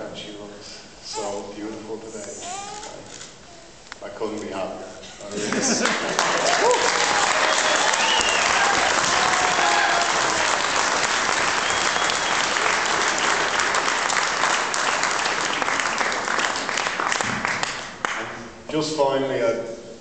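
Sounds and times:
audience applauding: 5.4 - 18.3.

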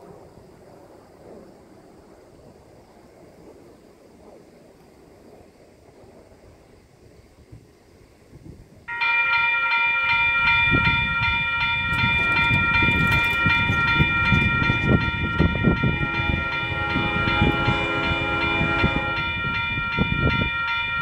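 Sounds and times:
crossing warning bell ringing: 8.9 - 21.0
train horn: 8.9 - 21.0.

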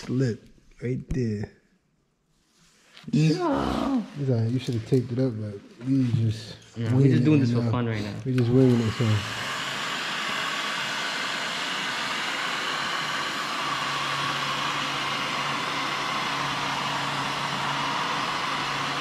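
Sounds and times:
heat gun blowing: 8.3 - 19.0.

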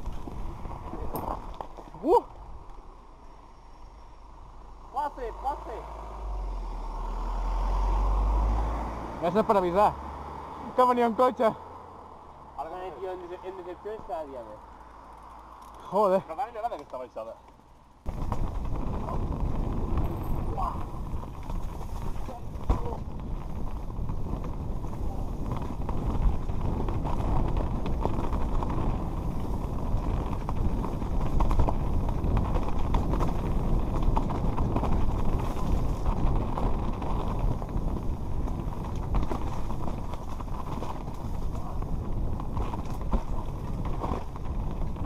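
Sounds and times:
bike tyres rumbling on stone: 0.0 - 2.9, 15.2 - 45.0
bike knocking on rocks: 18.1 - 24.8, 29.6 - 45.0.

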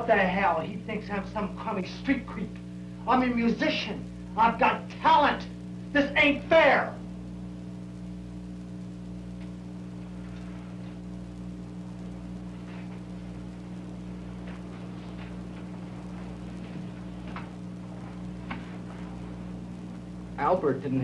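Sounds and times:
low electrical hum and buzz: 0.0 - 21.0
faint clicks and knocks: 9.3 - 19.3.

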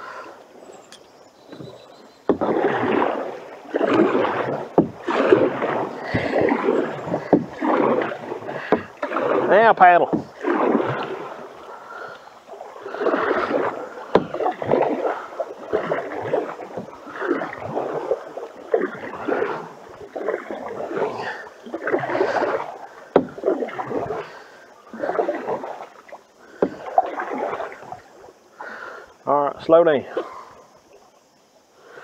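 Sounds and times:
canoe paddles splashing water: 0.0 - 32.0
sharp knocks: 4.7 - 5.5, 7.1 - 8.0.

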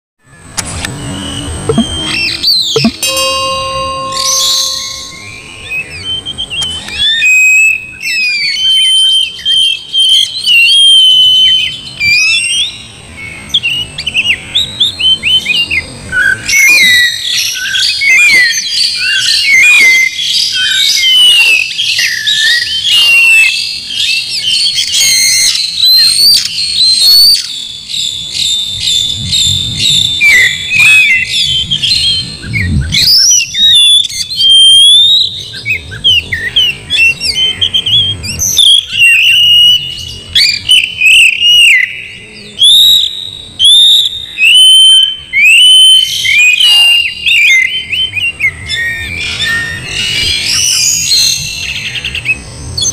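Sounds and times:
bird singing: 0.2 - 52.9.

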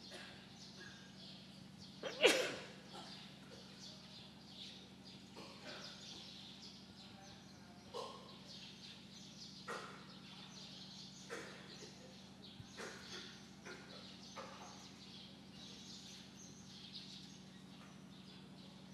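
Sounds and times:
bird chirping: 0.0 - 18.9.

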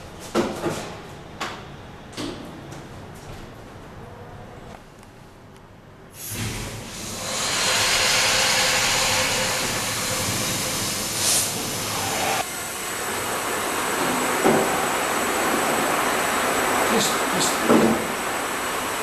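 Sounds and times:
steam hissing: 6.2 - 19.0.

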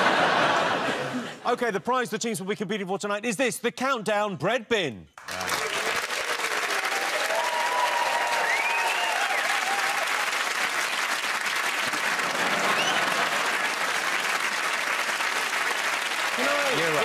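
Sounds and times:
audience applauding: 5.2 - 17.0.

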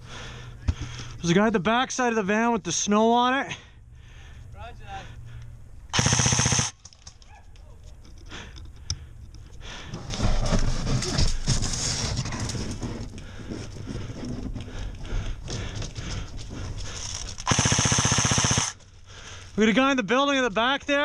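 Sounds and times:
airsoft rifle full auto burst: 5.9 - 6.8, 17.4 - 18.8.

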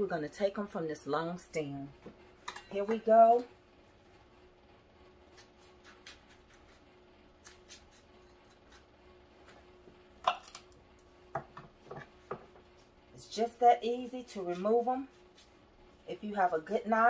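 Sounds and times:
knife stripping leaves: 5.2 - 8.9, 14.4 - 15.6.

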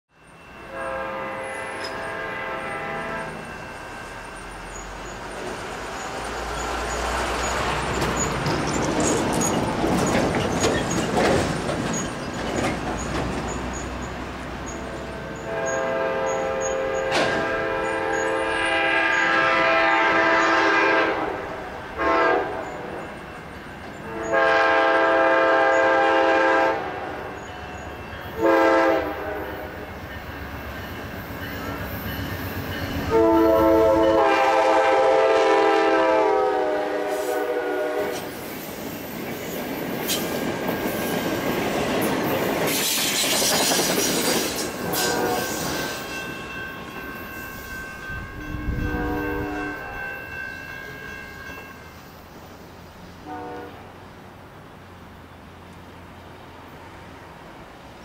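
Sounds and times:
train rumbling on rails: 0.1 - 58.0
locomotive horn blasts: 0.6 - 3.6, 15.2 - 23.0, 24.0 - 27.4, 28.4 - 29.8, 33.0 - 38.3, 44.8 - 45.9, 48.2 - 50.2, 53.2 - 53.9.

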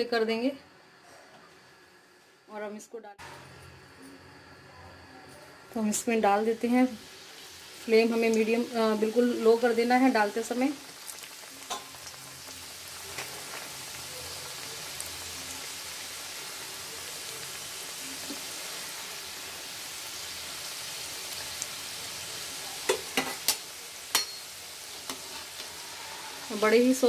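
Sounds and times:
pastries deep-frying in oil: 5.4 - 27.0.

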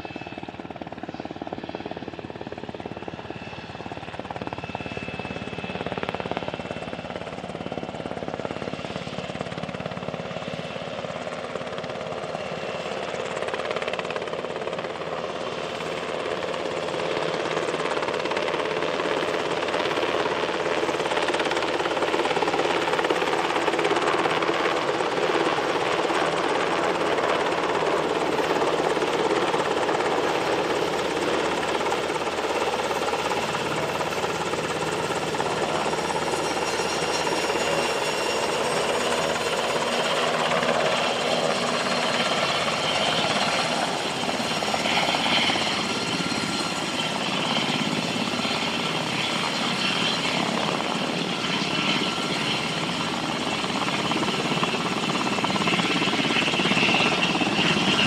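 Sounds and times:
helicopter flying low overhead: 0.0 - 58.0.

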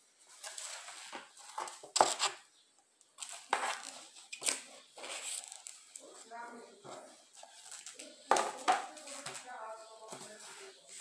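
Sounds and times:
book rustling and knocking: 0.4 - 2.4, 3.2 - 6.1, 6.8 - 10.6.

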